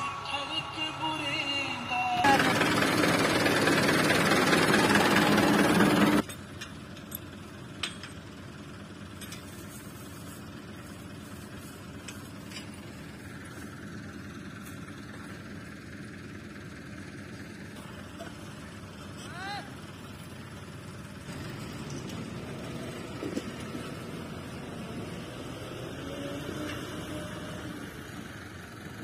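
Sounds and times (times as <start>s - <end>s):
loud music: 0.0s - 2.6s.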